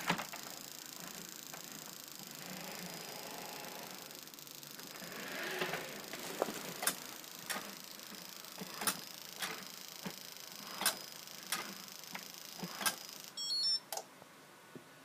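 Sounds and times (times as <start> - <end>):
robot vacuum running hiss: 0.0 - 13.0
robot vacuum clicking: 4.8 - 10.2
short electronic beep: 13.4 - 13.9.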